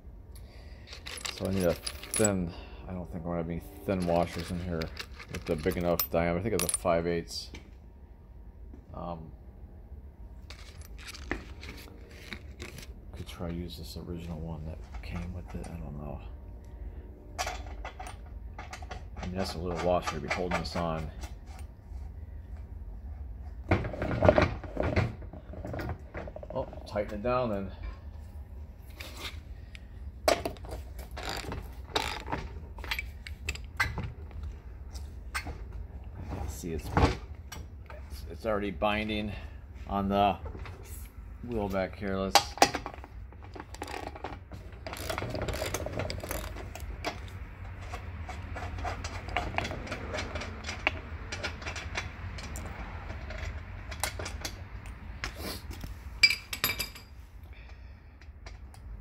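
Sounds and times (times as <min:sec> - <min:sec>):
small metal parts clinking: 0:00.4 - 0:02.6, 0:03.7 - 0:07.0, 0:10.4 - 0:12.9, 0:42.9 - 0:54.6
metallic clicks and clinks: 0:00.8 - 0:02.6.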